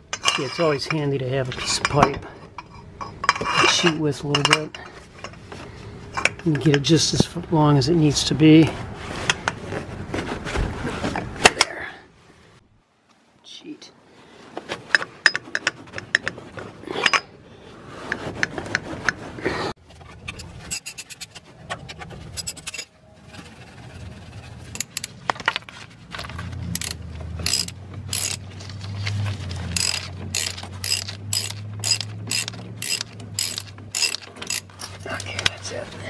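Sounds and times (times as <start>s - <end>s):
metal tools clanking: 0.0s - 7.3s, 14.9s - 17.4s, 20.0s - 23.0s, 24.6s - 35.7s
socket ratchet clicking: 26.7s - 28.4s, 29.7s - 35.0s.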